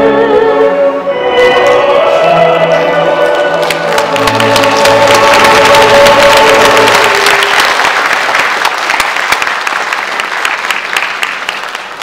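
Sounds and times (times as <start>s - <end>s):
audience applauding: 3.3s - 12.0s.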